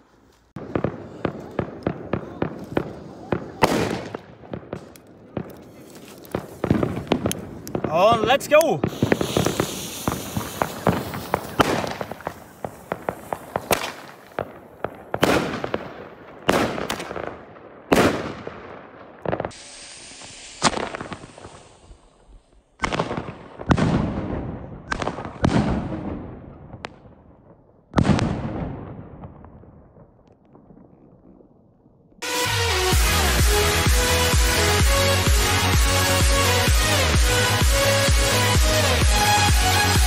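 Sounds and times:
firework crackling: 0:00.0 - 0:25.9, 0:32.2 - 0:40.0
loud echoing firework bangs: 0:00.6 - 0:21.9, 0:22.8 - 0:31.4.

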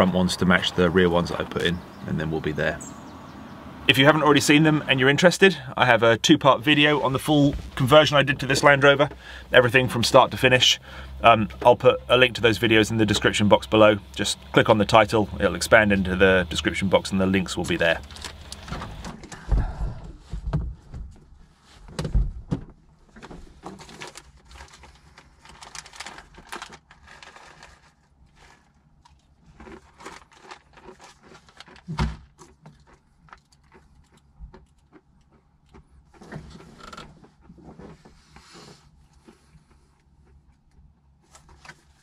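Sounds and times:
packets and paper rustling: 0:23.5 - 0:32.0.

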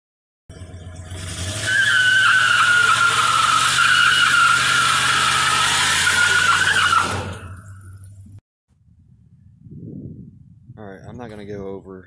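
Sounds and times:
car engine running: 0:00.5 - 0:08.4
tyres squealing: 0:01.5 - 0:07.8.

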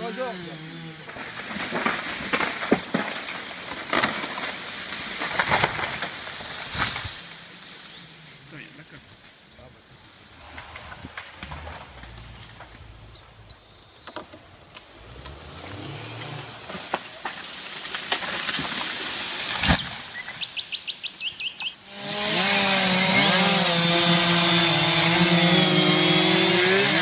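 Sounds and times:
chainsaw sawing through wood: 0:00.0 - 0:07.1, 0:10.4 - 0:13.5, 0:15.1 - 0:19.7, 0:21.8 - 0:27.0
birds calling high notes: 0:10.0 - 0:16.6.

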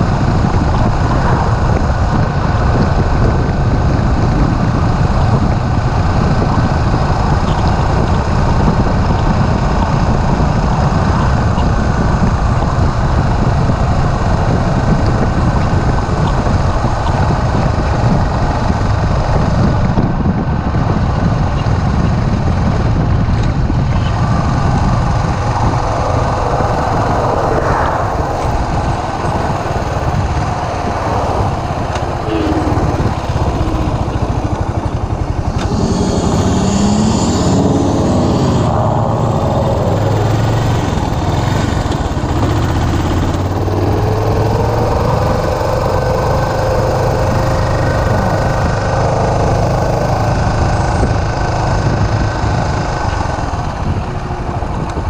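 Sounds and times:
motorcycle engine running: 0:00.0 - 0:55.0
wind rush on microphone: 0:00.0 - 0:55.0.

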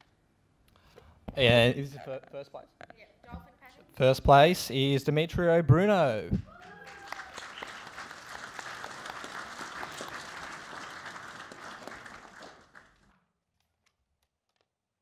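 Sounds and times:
audience applauding: 0:06.5 - 0:13.2.

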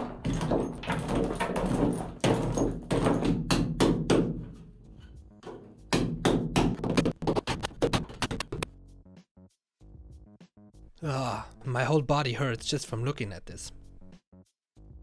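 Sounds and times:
metal clanking and scraping: 0:00.0 - 0:03.3.

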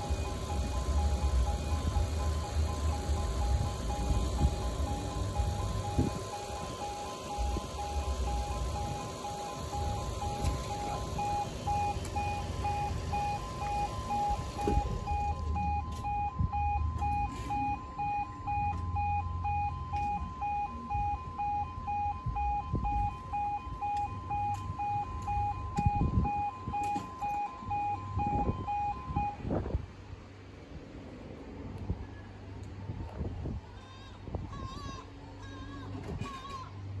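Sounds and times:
pulsing two-tone crossing alarm: 0:00.0 - 0:29.5.

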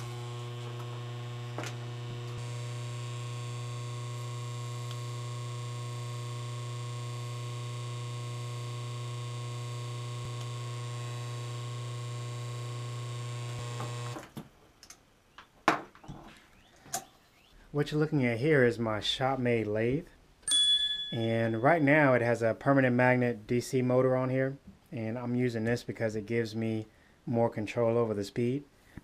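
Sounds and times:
electric motor humming: 0:00.0 - 0:14.3.

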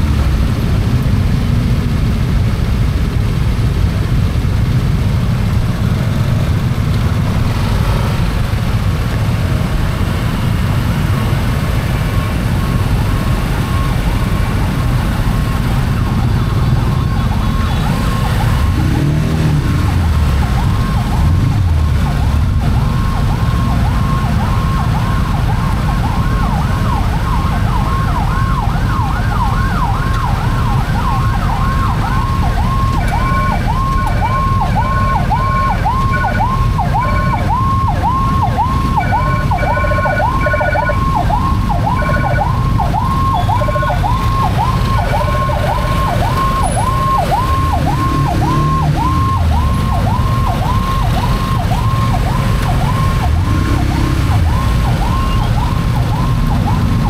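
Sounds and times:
engines and traffic rumble: 0:00.0 - 0:57.0
higher siren: 0:11.0 - 0:57.0
siren yelping: 0:12.4 - 0:57.0.

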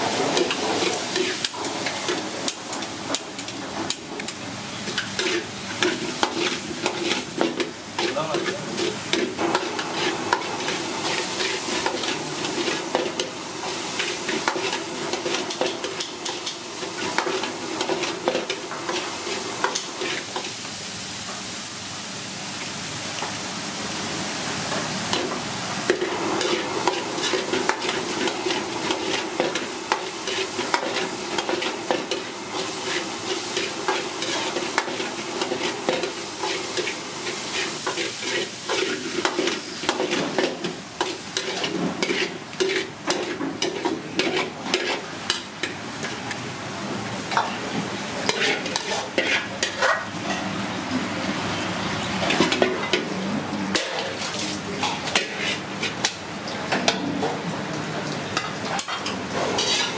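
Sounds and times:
ladle scraping and clacking wok: 0:00.0 - 0:20.5, 0:24.8 - 0:46.3, 0:47.2 - 0:50.4, 0:53.7 - 0:56.2, 0:58.4 - 0:59.9
steady sizzle: 0:00.0 - 0:59.9.

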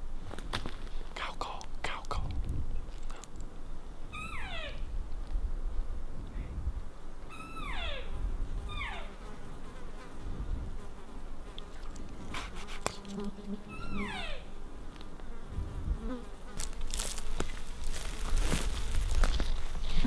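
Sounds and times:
fly buzzing: 0:07.3 - 0:18.8.

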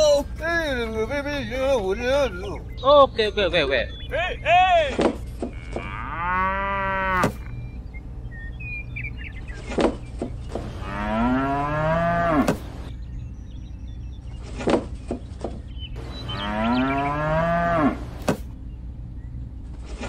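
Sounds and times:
cow mooing: 0:05.4 - 0:07.4, 0:10.7 - 0:12.6, 0:16.2 - 0:18.1.

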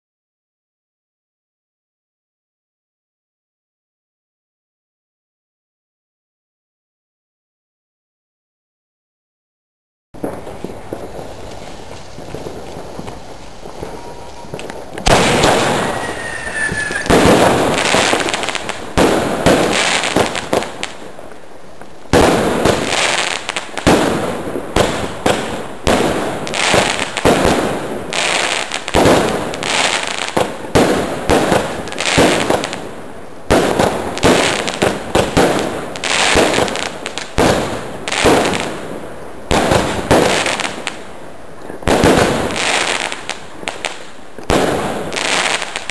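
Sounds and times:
fireworks shots and bursts: 0:10.2 - 0:41.1, 0:41.7 - 0:45.9.

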